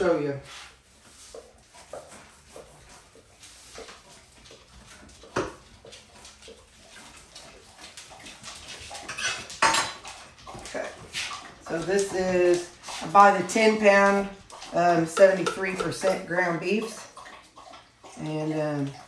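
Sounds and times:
dishes clinking in sink: 0:09.1 - 0:10.0, 0:15.1 - 0:17.0.

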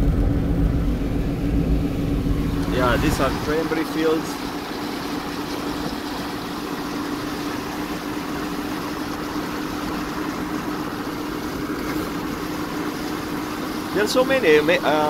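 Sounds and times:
vehicle cabin road and engine hum: 0:00.0 - 0:15.0.

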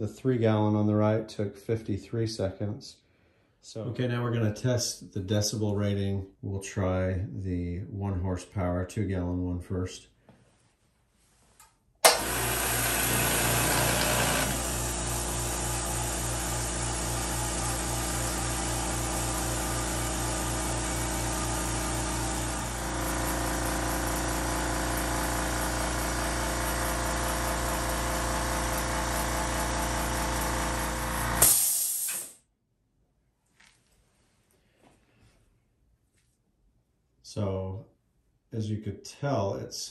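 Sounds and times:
air compressor running: 0:12.0 - 0:32.4.

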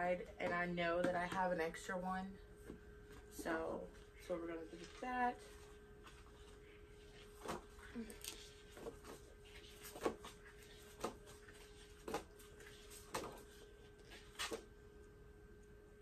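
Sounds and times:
paper pads slapping and rustling: 0:08.4 - 0:14.7.

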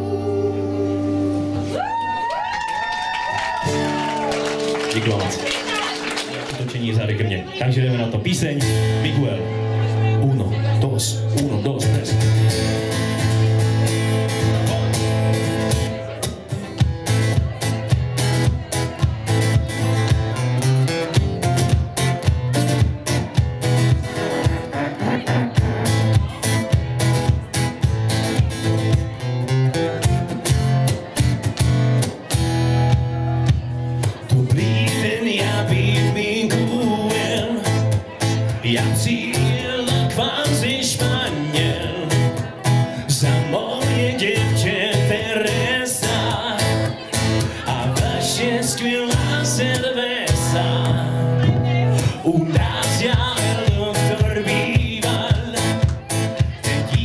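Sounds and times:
man singing: 0:00.0 - 0:01.7, 0:34.0 - 0:57.0
acoustic guitar strumming: 0:00.0 - 0:01.8, 0:03.6 - 0:57.0.

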